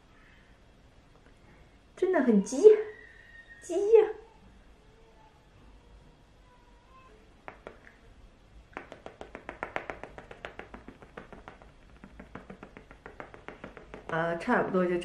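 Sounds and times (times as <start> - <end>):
soft patting on skin: 7.4 - 8.1, 8.7 - 14.4.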